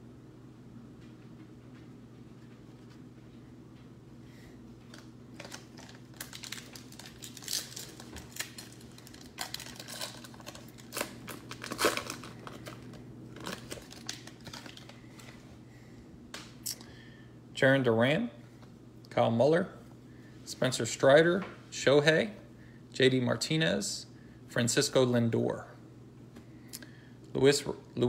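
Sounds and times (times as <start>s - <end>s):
plastic wrapper tearing and crinkling: 4.9s - 15.4s.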